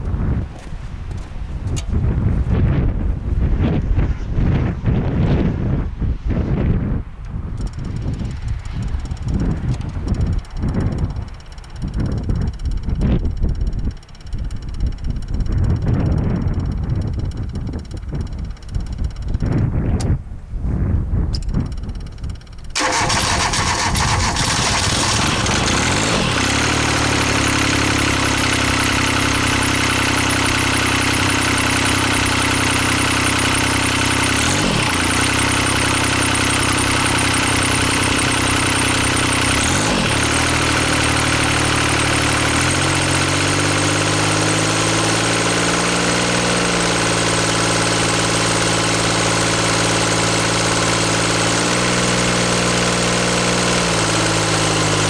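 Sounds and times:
diesel tractor engine idling: 0:07.6 - 0:19.7, 0:21.4 - 0:52.4.

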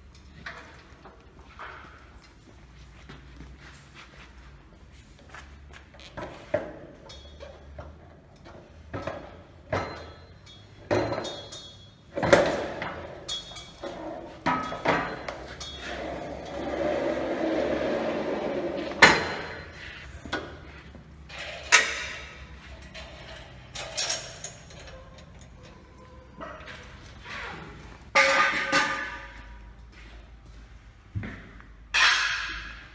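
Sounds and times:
metal parts knocking and clanking: 0:06.1 - 0:17.2, 0:18.7 - 0:29.6
scraping rumble: 0:15.8 - 0:20.1.

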